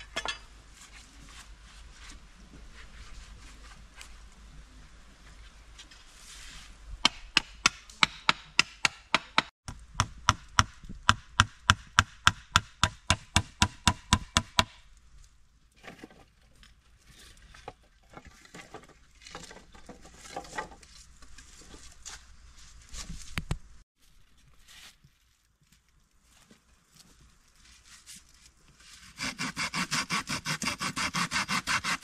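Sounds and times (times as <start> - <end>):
chopping on wood: 7.0 - 14.8
rustling: 15.2 - 29.2.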